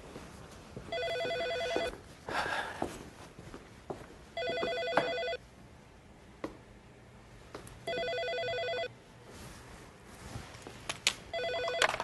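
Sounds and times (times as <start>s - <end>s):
telephone ringing electronic warble: 7.9s - 8.9s, 11.3s - 12.0s.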